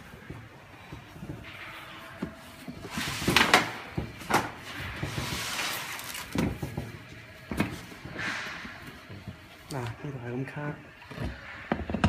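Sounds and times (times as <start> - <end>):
rustling scrape: 0.0 - 9.8.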